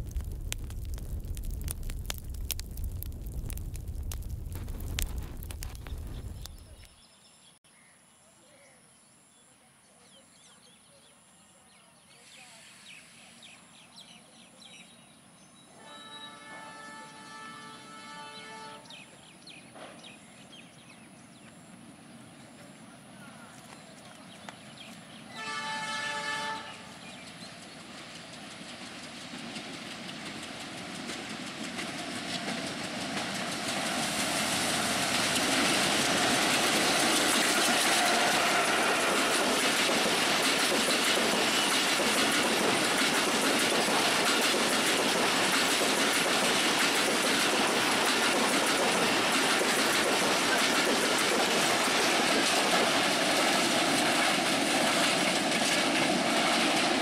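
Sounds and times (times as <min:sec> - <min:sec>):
locomotive horn blast: 0:15.8 - 0:18.9, 0:25.3 - 0:26.9
train rumble and wheel clatter: 0:15.8 - 0:57.0.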